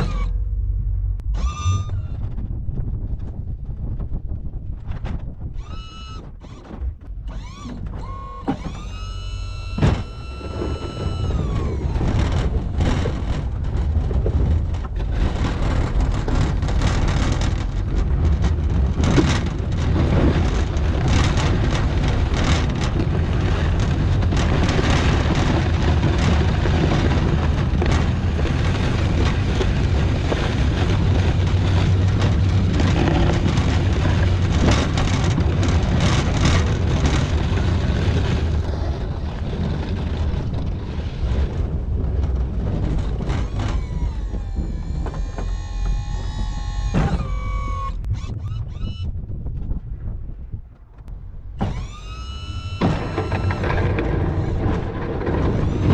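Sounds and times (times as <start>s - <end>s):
engine running: 0.0s - 4.0s, 6.4s - 49.0s, 51.1s - 55.9s
plow rattling and clattering: 0.0s - 48.1s, 50.9s - 55.9s
plow blade scraping pavement: 5.8s - 48.0s, 51.6s - 55.9s.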